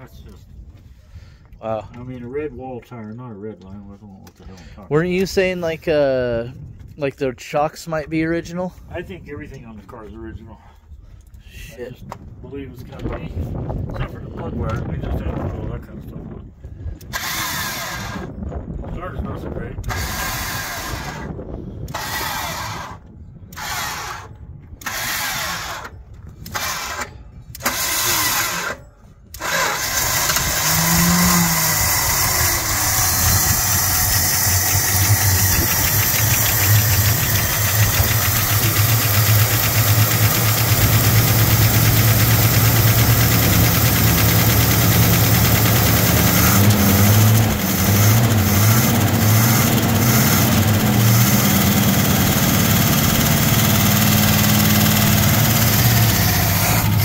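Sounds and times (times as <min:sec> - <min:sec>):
starter motor cranking: 0:17.0 - 0:18.3, 0:19.8 - 0:57.0
vee eight engine running: 0:26.5 - 0:57.0.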